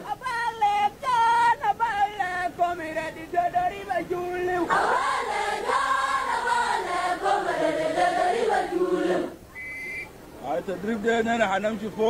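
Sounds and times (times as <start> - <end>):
group of voices singing: 2.4 - 9.4.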